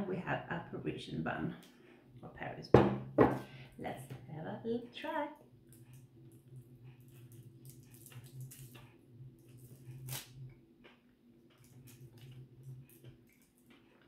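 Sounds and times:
steady low hum: 0.0s - 14.0s
person chewing food: 5.6s - 14.0s.

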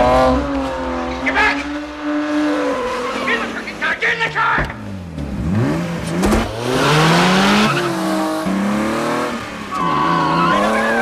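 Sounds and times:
tyres squealing: 0.4s - 4.9s, 9.7s - 11.0s
car engine accelerating hard: 4.6s - 11.0s.

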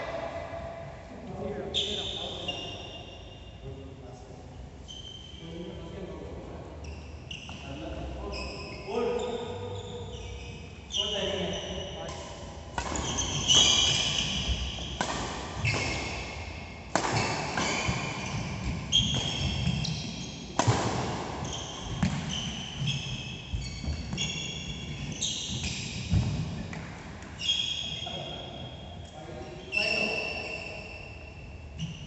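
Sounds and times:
shoes squeaking on court: 4.8s - 5.4s, 6.8s - 12.1s, 12.8s - 16.4s, 17.1s - 20.6s, 21.4s - 32.0s
rackets striking shuttlecock: 12.0s - 16.3s, 16.9s - 21.2s.

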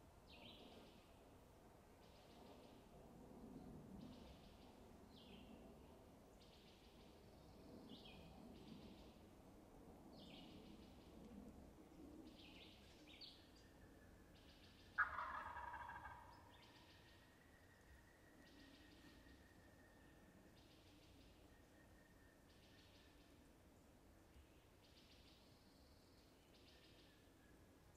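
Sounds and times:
songbird singing: 0.2s - 1.2s, 3.6s - 9.3s, 10.1s - 11.3s, 12.2s - 27.9s
turkey gobbling: 15.0s - 16.4s.

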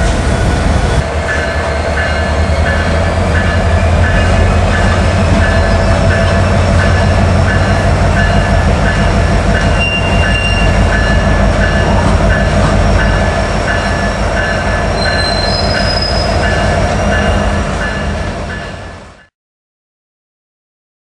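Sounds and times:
diesel locomotive engine rumbling: 0.0s - 19.3s
locomotive bell ringing: 1.2s - 19.3s
high wheel squeals: 9.7s - 10.9s, 14.9s - 17.2s.

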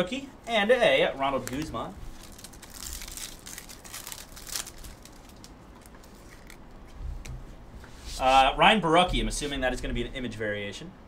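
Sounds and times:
sharp wrapper crackle: 1.2s - 6.8s
card wrappers crinkling: 1.2s - 6.9s.

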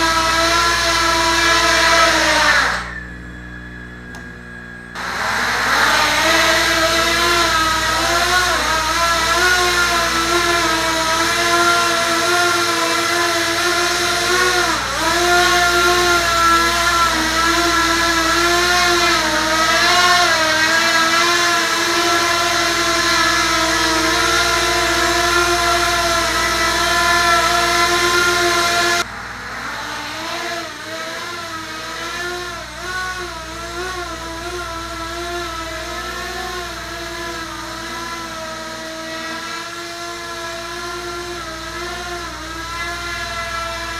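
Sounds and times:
quadcopter motors whining: 0.0s - 43.9s.

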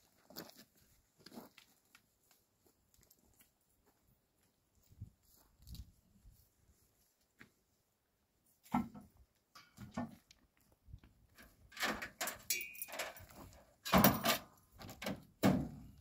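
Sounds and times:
metal mesh gate clanking: 11.7s - 15.8s.

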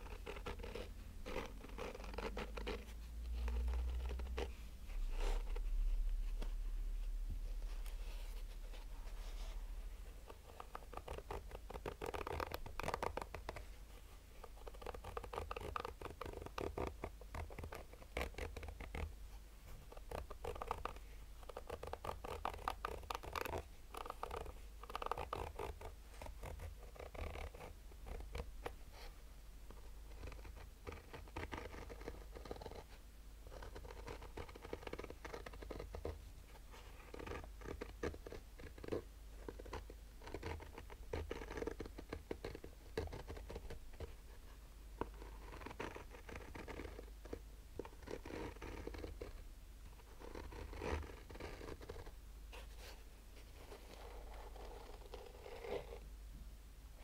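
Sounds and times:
fingernails scratching fabric case: 0.0s - 5.6s, 10.2s - 13.7s, 14.4s - 19.1s, 19.9s - 28.5s, 30.1s - 32.9s, 33.5s - 36.2s, 36.8s - 43.8s, 45.0s - 49.4s, 50.0s - 52.1s, 53.6s - 56.0s.

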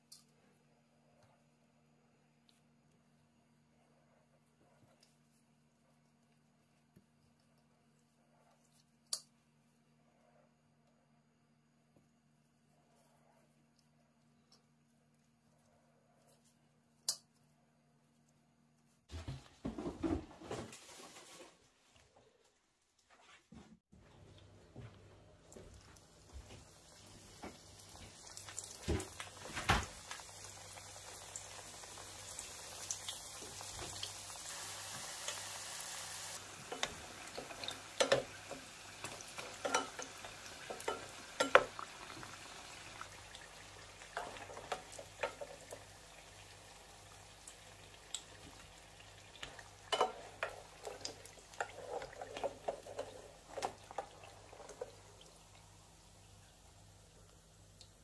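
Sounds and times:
food sizzling in hot oil: 26.1s - 56.3s.

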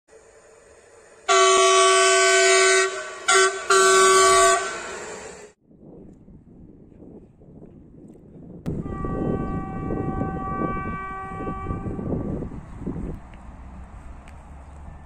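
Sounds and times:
train horn blasts: 1.2s - 5.3s, 8.7s - 12.5s.

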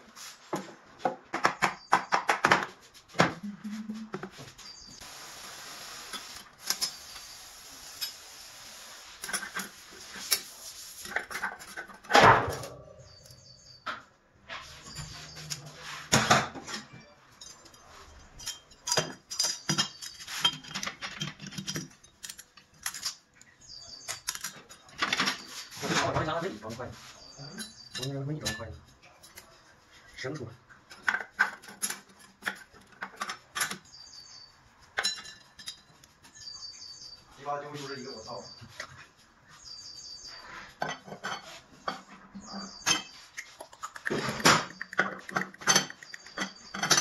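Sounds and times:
metal parts clinking and clattering: 16.6s - 25.4s, 44.4s - 47.0s.

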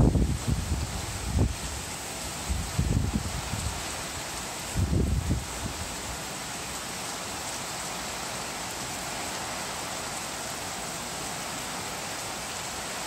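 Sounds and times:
heavy rain hissing: 0.0s - 13.0s.

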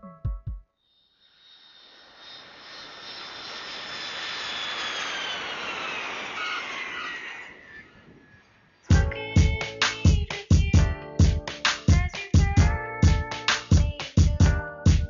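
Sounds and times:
high engine whine: 1.1s - 10.0s
jet aircraft passing: 1.2s - 8.9s.

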